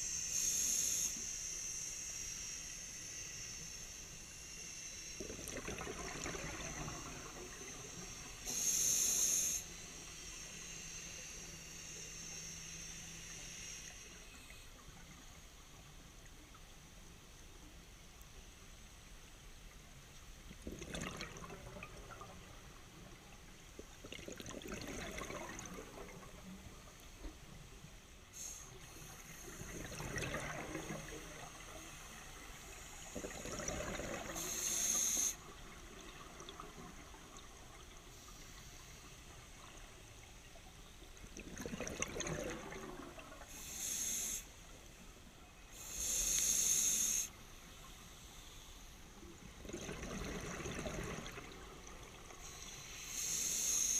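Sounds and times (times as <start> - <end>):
bubbling exhalations: 20.7 - 22.2
sharp high hisses: 45.8 - 47.4
underwater regulator breathing: 45.8 - 47.4.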